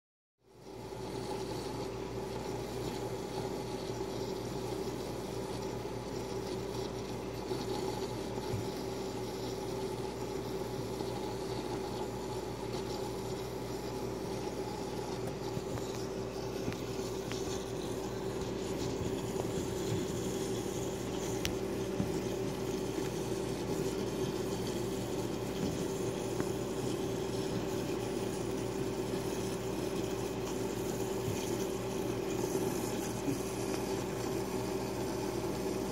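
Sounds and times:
pump hum: 0.4 - 35.9.

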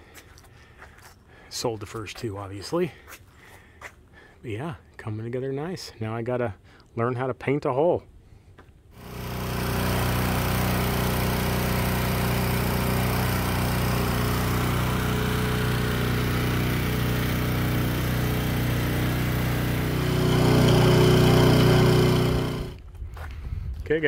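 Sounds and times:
small gasoline engine running: 9.0 - 22.8.

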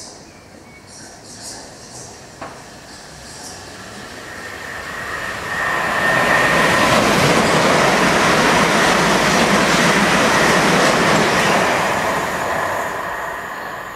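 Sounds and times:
train wheels rushing on rails: 1.4 - 13.9
rails ringing tone: 3.4 - 13.9.

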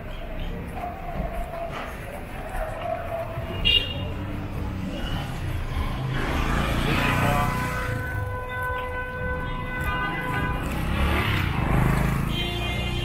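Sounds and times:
motorcycle and car engines passing: 4.1 - 8.4, 10.2 - 13.0.

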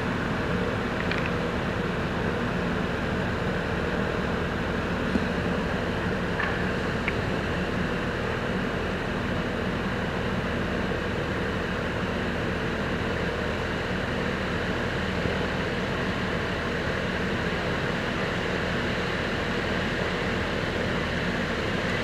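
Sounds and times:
city traffic rumble: 0.0 - 9.6
construction machinery: 0.0 - 22.0.

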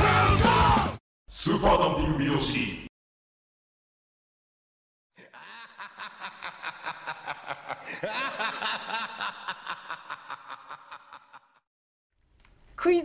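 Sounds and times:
person laughing in rapid snickers: 5.2 - 11.6.

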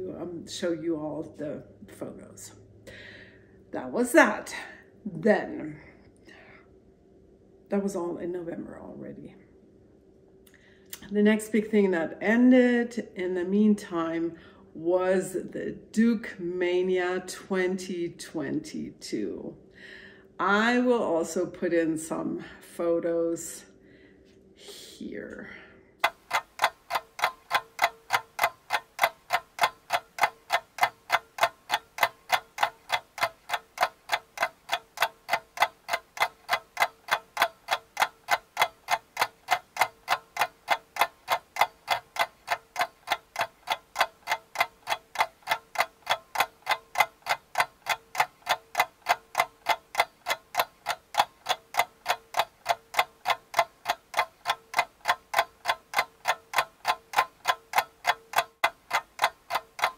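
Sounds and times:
clock-like ticking: 26.0 - 59.9.

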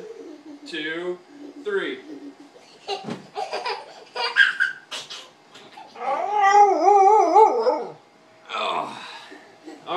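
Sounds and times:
toddler laughing: 1.3 - 6.0
dog howling: 6.0 - 8.0.

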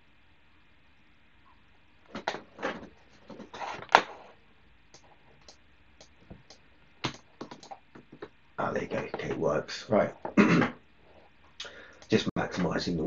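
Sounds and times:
desk scrapes and knocks: 2.1 - 4.3.

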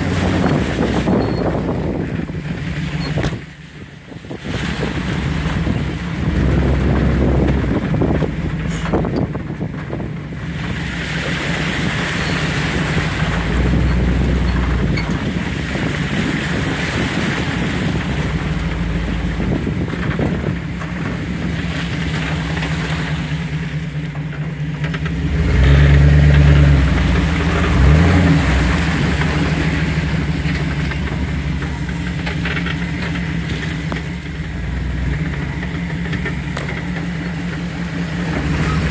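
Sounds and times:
off-road vehicle engine running: 0.0 - 38.9
engine throttle bursts: 10.0 - 38.9.

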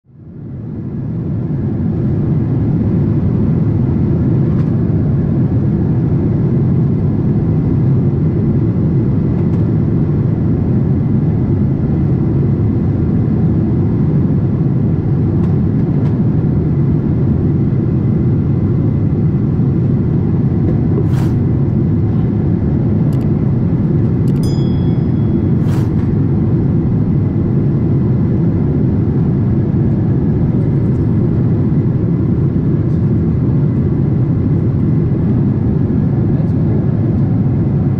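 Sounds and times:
jet engine cabin drone: 0.1 - 37.9
airflow over fuselage: 0.6 - 37.9
brief high tone: 24.4 - 25.7.

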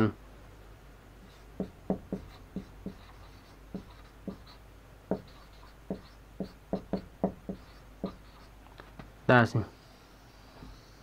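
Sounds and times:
marker writing on whiteboard: 1.2 - 8.6.

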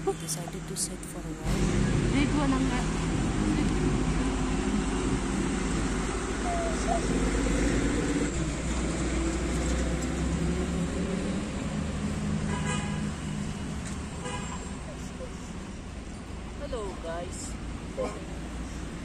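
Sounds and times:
highway traffic rumble: 0.0 - 19.0
vehicle horn: 12.4 - 13.4, 14.2 - 14.9.

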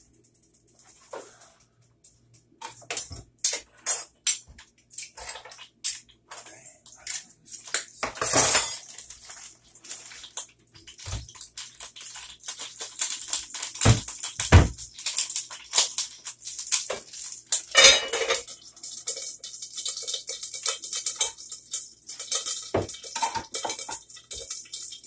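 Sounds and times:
pots and pans clattering: 8.0 - 9.0, 12.5 - 16.0, 16.7 - 25.0.

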